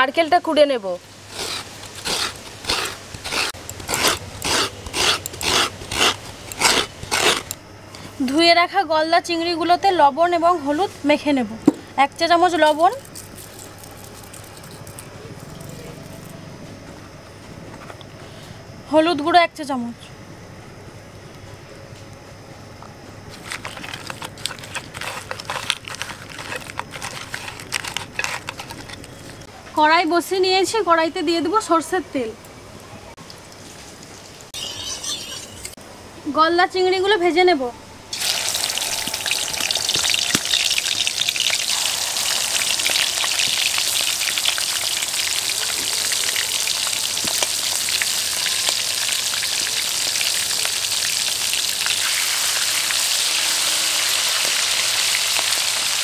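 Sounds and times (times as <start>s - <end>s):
coconut scraping against grater: 1.3s - 7.6s, 23.4s - 29.4s
prawn shells clicking and rustling: 23.3s - 29.5s.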